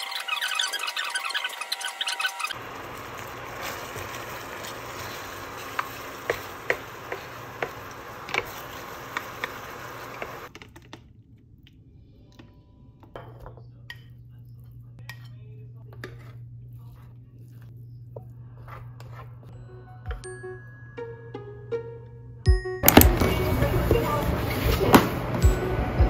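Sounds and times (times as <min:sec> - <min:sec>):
spatula scraping pan: 0:00.0 - 0:10.5, 0:15.1 - 0:19.5
stew bubbling in a pan: 0:02.5 - 0:10.5.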